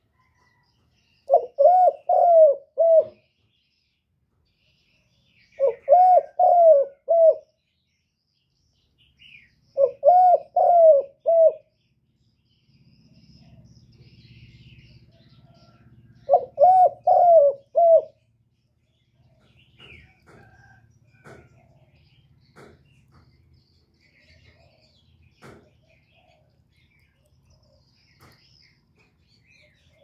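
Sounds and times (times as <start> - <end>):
dove cooing: 1.3 - 3.3, 5.6 - 7.5, 9.8 - 11.7, 16.2 - 18.2.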